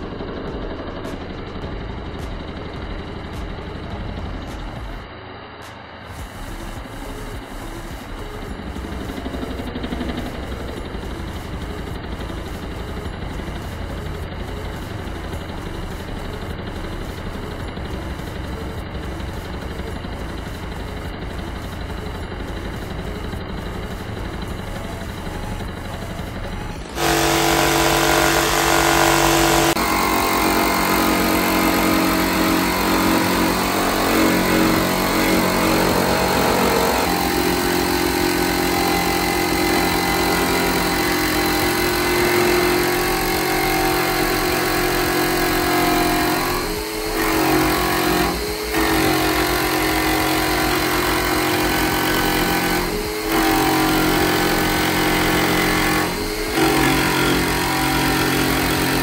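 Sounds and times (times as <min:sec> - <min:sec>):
jigsaw cutting sheet metal: 0:06.2 - 0:59.0.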